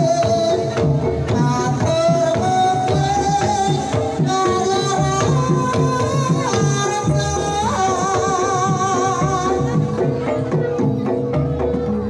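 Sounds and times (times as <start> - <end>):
drum strokes: 0.0 - 12.0.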